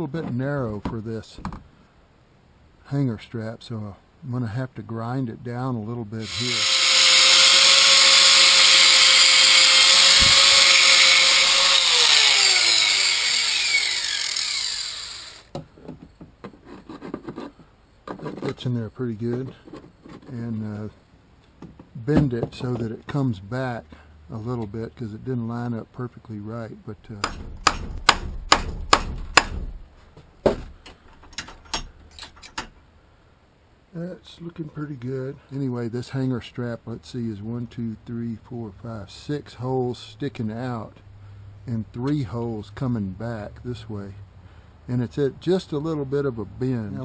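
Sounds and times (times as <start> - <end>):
angle grinder grinding metal: 6.2 - 15.5
hammer striking metal strap: 10.2 - 10.5, 27.2 - 29.8.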